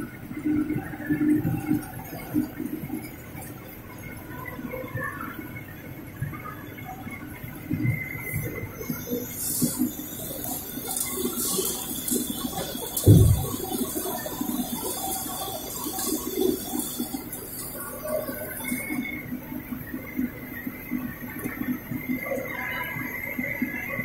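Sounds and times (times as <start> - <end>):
machinery running: 8.2 - 19.4
popcorn tumbling on a conveyor: 9.4 - 19.0
loud thump: 13.1 - 13.4.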